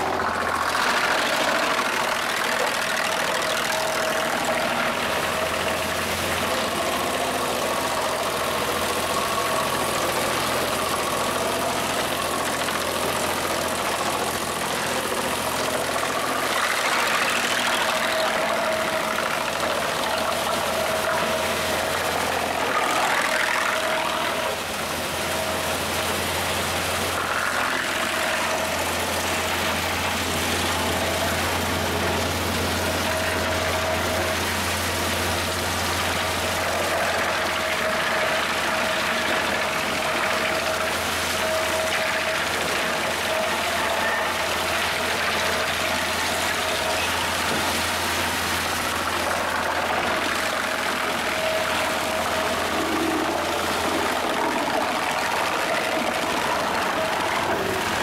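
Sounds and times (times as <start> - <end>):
wood chipper chipping branches: 0.0 - 58.0.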